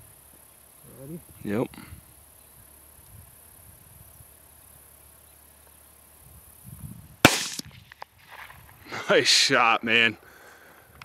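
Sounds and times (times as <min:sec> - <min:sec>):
insects trilling: 0:00.0 - 0:11.0
rifle shot: 0:07.2 - 0:08.5.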